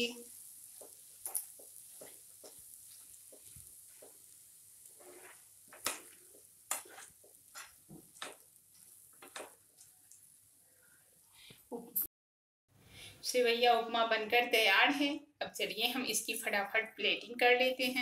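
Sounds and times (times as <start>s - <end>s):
faint sizzle: 0.0s - 12.1s
spatula scraping pan: 0.5s - 9.6s.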